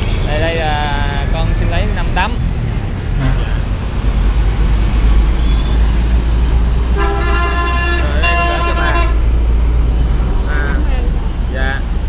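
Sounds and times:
heavy road traffic rumbling: 0.0 - 12.0
vehicle horn: 7.0 - 9.2.

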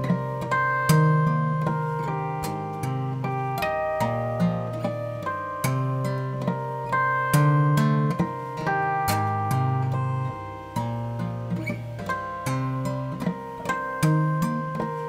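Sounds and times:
fingerstyle acoustic guitar: 0.0 - 15.0
percussive guitar strikes: 0.0 - 15.0.

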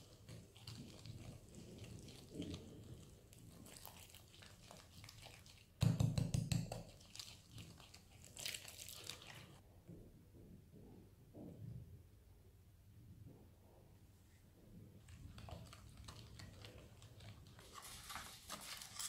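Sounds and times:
whisk scraping in a bowl: 0.0 - 5.6
whisk knocking on bowl: 5.8 - 7.0.

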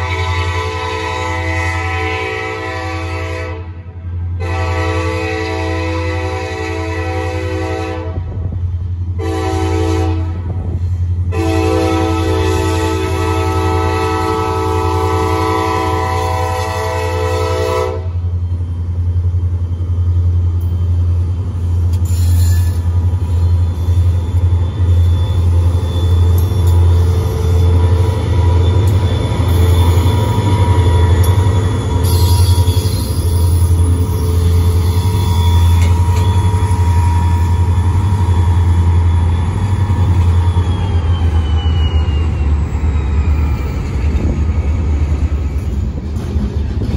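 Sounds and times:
train horn blasts: 0.0 - 8.5, 9.2 - 18.3, 28.9 - 38.6
diesel locomotive engines running: 0.0 - 46.9.

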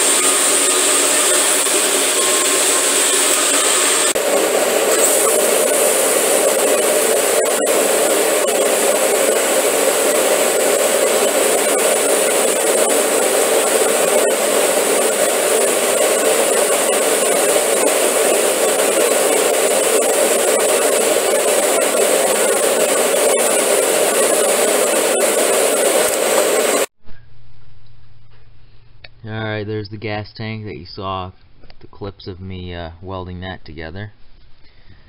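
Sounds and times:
welding arc hiss and crackle: 0.0 - 26.9.

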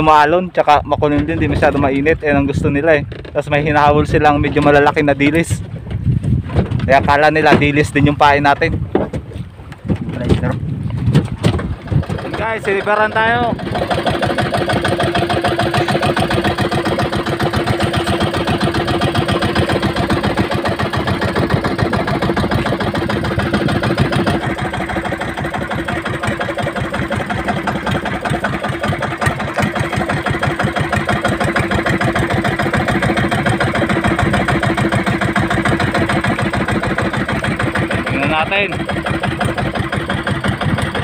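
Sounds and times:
small boat engine putter: 0.0 - 41.0.

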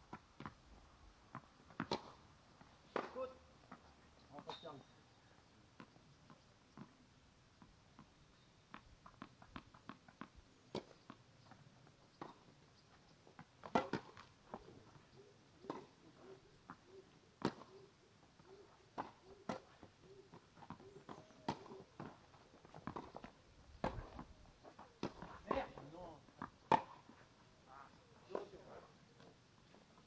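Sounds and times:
tennis ball bouncing and struck: 1.3 - 2.2, 2.9 - 3.8, 8.7 - 11.2, 13.4 - 14.3, 15.6 - 16.0, 17.4 - 17.7, 18.9 - 22.2, 22.8 - 24.2, 25.0 - 27.1.

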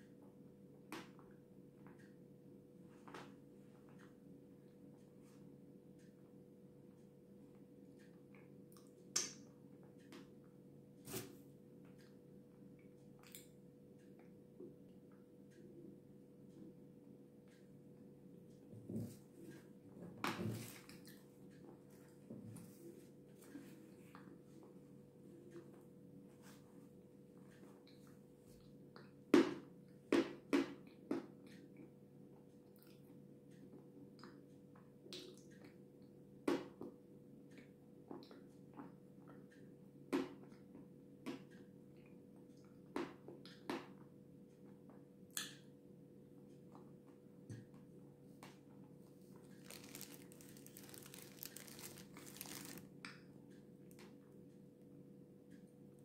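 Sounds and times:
faint crackling and crinkling: 18.7 - 28.8, 48.3 - 54.2.

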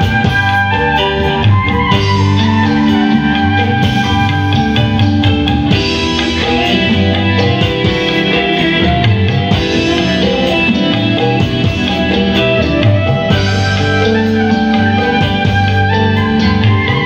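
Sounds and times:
drum kit: 0.0 - 17.0
guitar melody: 0.0 - 17.0
hand drum: 0.0 - 17.0
live band playing loudly: 0.0 - 17.0.

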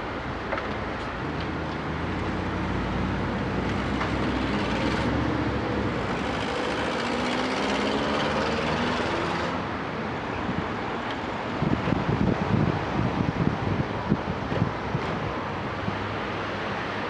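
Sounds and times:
excavator diesel engine running: 3.6 - 9.5
hydraulic whine: 3.6 - 9.6.

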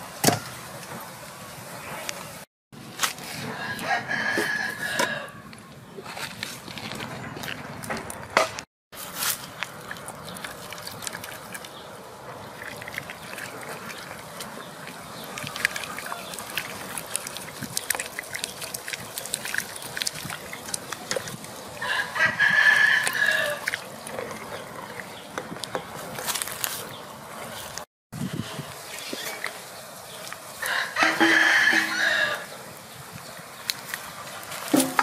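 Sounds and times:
rooster crowing: 3.5 - 5.4, 21.8 - 23.6, 30.6 - 32.5.

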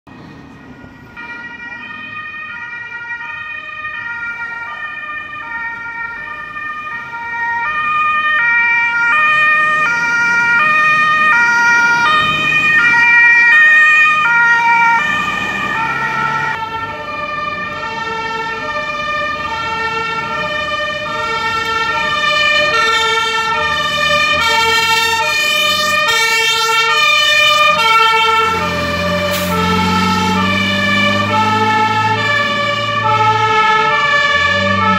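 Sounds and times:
fire engine rumble: 0.1 - 34.9
two-tone emergency sirens: 0.1 - 34.9.

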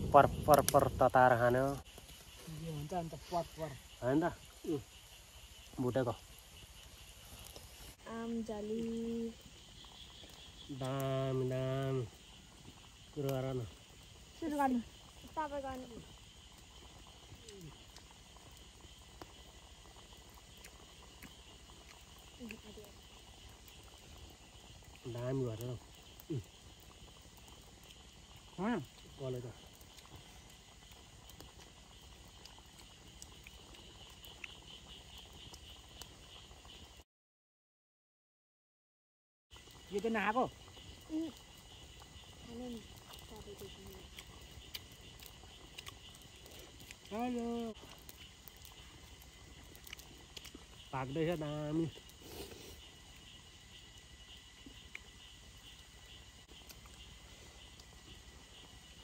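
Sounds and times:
faint insects chirping: 0.0 - 37.0, 39.5 - 59.0.

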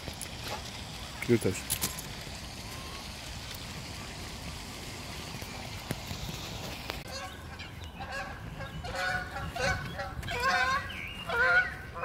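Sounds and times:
geese honking: 7.0 - 12.0.

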